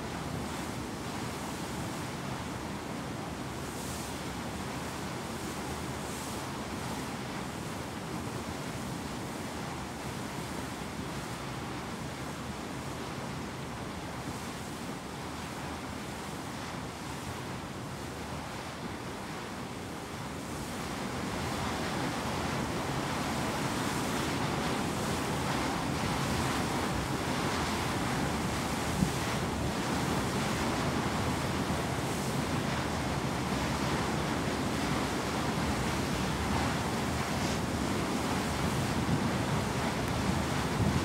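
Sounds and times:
sea water rushing past ship: 0.0s - 41.0s
wind on microphone: 33.5s - 41.0s.

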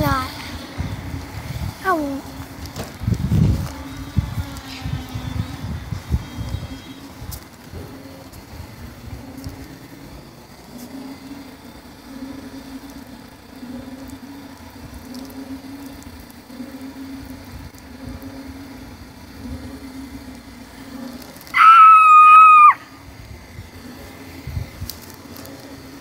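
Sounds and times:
high-pitched squeal: 21.4s - 23.1s.

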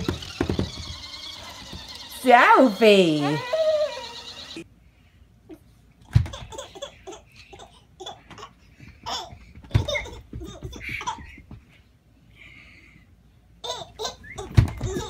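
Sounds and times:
baby laughing: 6.1s - 11.6s, 13.6s - 15.0s.

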